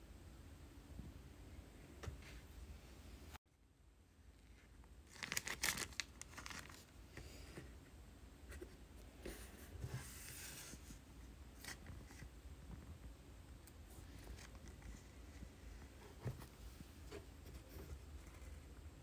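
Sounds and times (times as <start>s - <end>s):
plastic bag crinkling: 5.0s - 6.9s.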